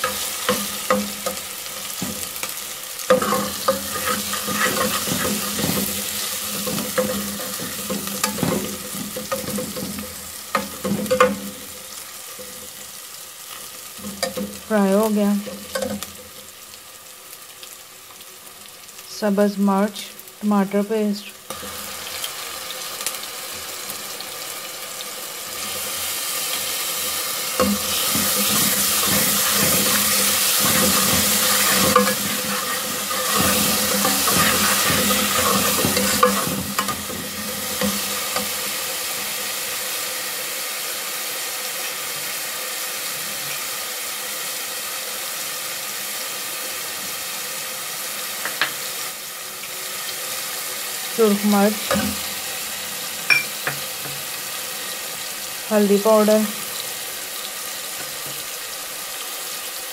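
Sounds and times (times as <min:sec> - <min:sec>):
food sizzling in hot oil: 0:00.0 - 0:59.9
spoon scraping metal pot: 0:03.1 - 0:09.9, 0:27.6 - 0:37.0.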